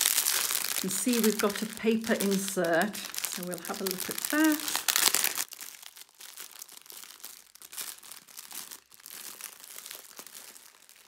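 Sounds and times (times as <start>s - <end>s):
plastic wrapping crinkling: 0.0s - 11.0s.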